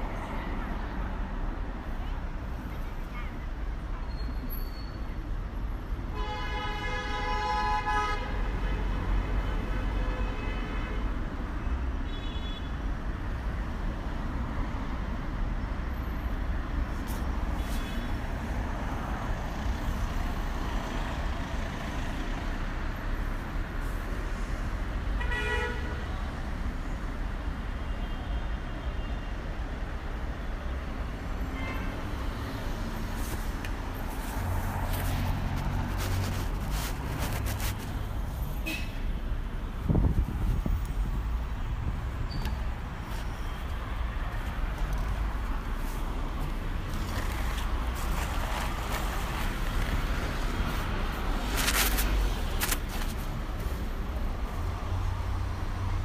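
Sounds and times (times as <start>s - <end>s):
road traffic rumble: 0.0s - 56.0s
vehicle horn honking: 38.6s - 39.0s.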